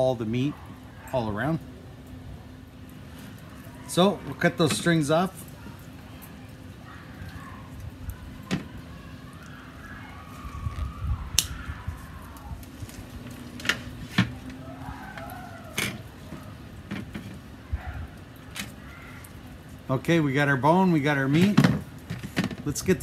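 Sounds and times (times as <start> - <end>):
steady low hum: 0.0 - 23.0
scissors snipping twine: 11.4 - 11.6.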